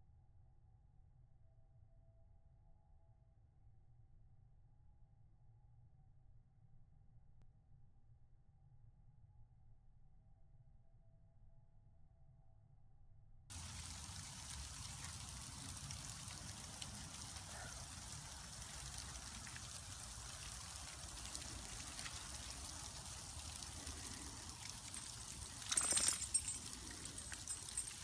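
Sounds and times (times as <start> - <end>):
outdoor hiss and rumble: 13.5 - 28.0.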